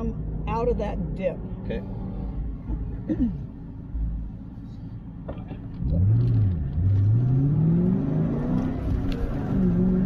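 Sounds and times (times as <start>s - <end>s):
car engine accelerating hard: 5.6s - 10.0s.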